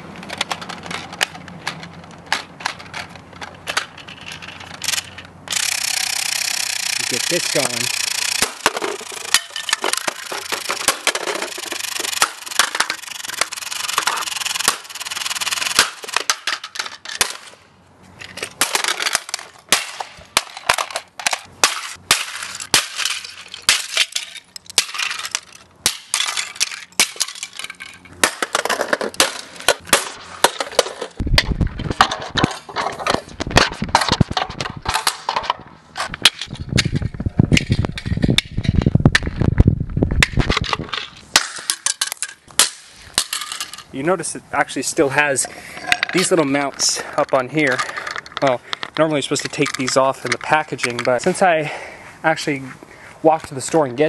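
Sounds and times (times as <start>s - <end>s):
plastic fragments clattering: 7.0s - 17.4s, 20.4s - 31.2s, 43.1s - 43.9s.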